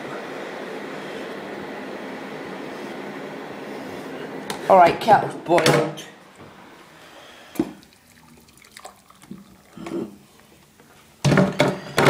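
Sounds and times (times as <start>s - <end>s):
boiling water pouring into mug: 6.8s - 11.7s.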